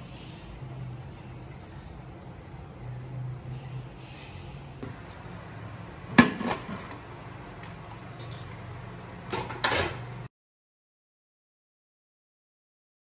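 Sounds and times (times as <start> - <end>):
steady low hum: 0.0 - 10.3.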